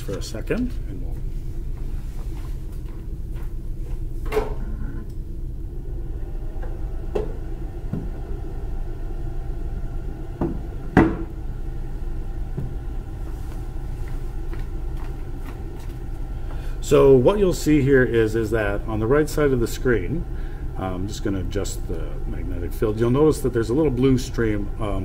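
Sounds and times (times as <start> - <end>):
steady low hum: 0.0 - 25.0
lab equipment knocks and clunks: 10.4 - 11.3.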